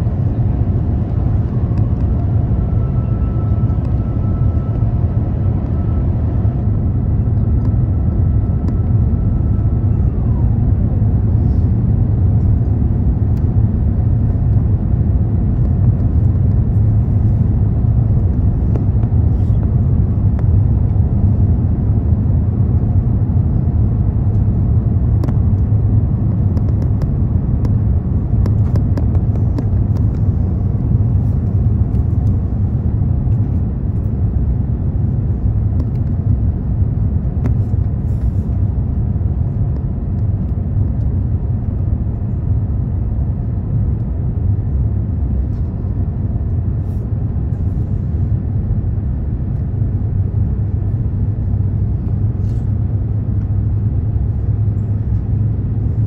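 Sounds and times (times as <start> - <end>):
airliner engine rumble in cabin: 0.0 - 56.0.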